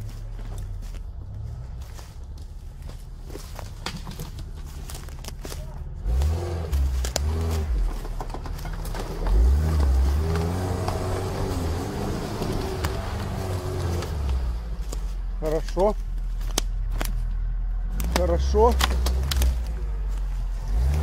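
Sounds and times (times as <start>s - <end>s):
car engine revving under load: 0.0s - 21.0s.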